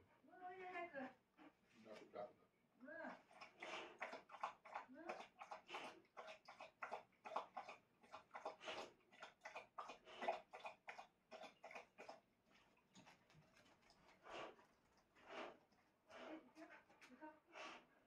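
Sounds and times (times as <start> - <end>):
dog eating from a bowl: 3.2 - 17.0.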